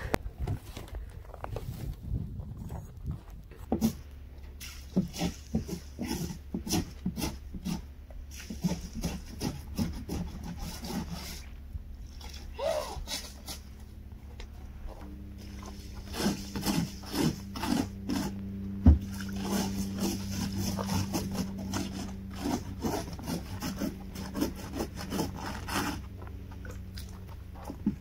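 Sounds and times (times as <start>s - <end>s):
ice scraper scraping windshield: 4.6s - 11.5s, 12.9s - 13.7s, 15.4s - 26.7s.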